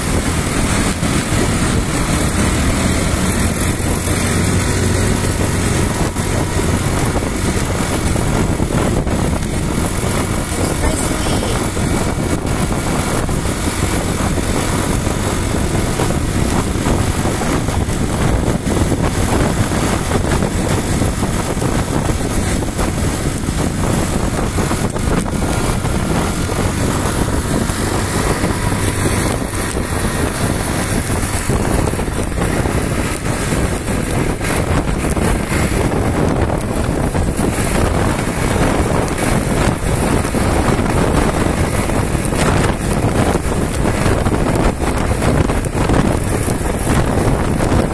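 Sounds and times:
motorcycle road noise: 0:00.0 - 0:47.9
wind rushing: 0:00.0 - 0:47.9.

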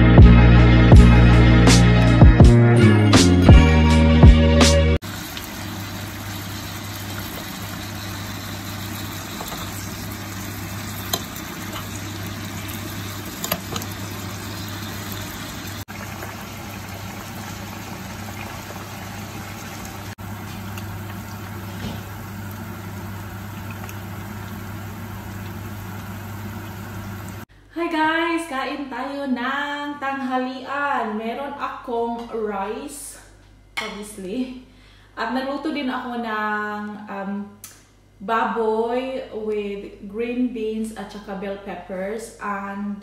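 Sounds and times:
food sizzling in a frying pan: 0:05.0 - 0:27.5.

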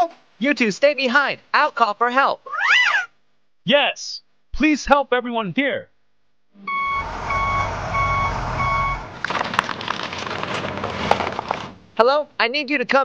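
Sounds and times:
truck reversing alarm beeping: 0:06.6 - 0:09.2
low engine rumble: 0:06.7 - 0:11.6
rattling clatter with clicks: 0:09.2 - 0:11.8.

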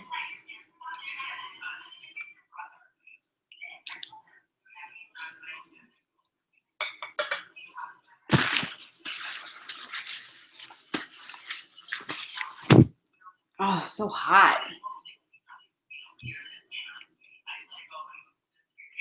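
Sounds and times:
paper napkin rustling: 0:08.3 - 0:12.9.

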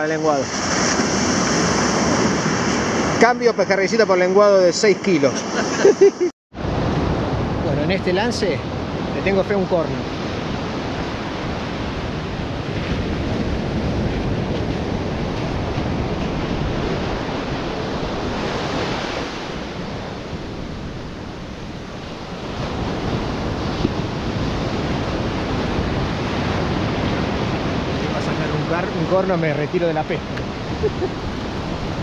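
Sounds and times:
ocean surf breaking: 0:00.0 - 0:32.0
wind buffeting microphone: 0:06.6 - 0:32.0.

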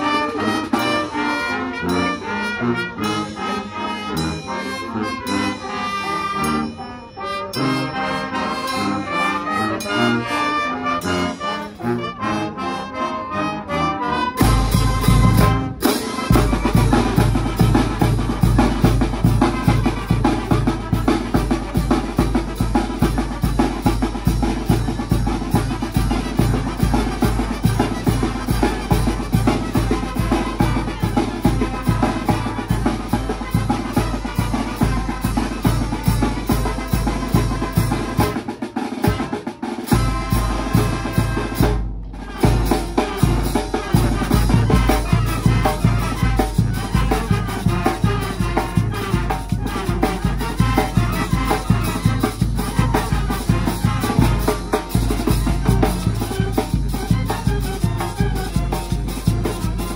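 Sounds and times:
brass band playing: 0:00.0 - 0:59.9
bass drum and cymbals beat: 0:14.4 - 0:59.9.

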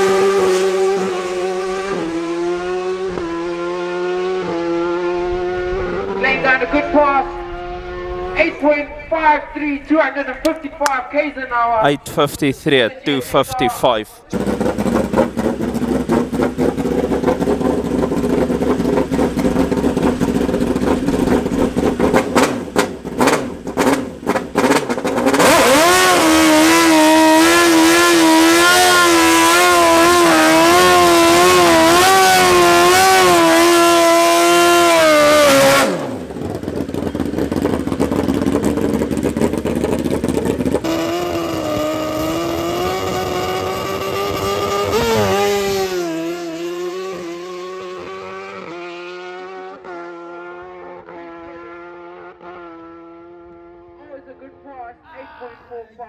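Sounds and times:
motorcycle engine revving: 0:00.0 - 0:08.7, 0:14.2 - 0:54.8
tyre burnout: 0:13.9 - 0:53.0.

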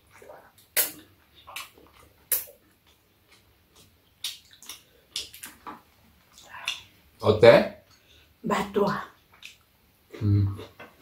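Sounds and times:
mouth sounds: 0:10.1 - 0:10.9.

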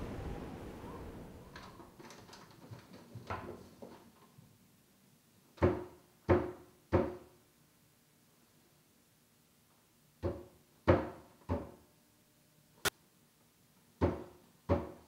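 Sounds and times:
faint clicks and rustles: 0:00.0 - 0:04.5.

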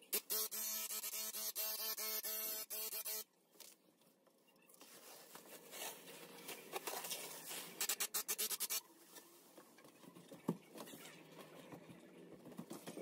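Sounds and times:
plastic sheet rustling and crinkling: 0:04.8 - 0:07.8.

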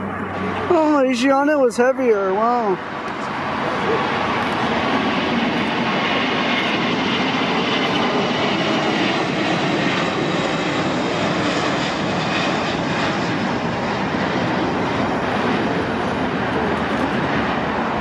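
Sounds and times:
jet engines roaring: 0:00.0 - 0:18.0.

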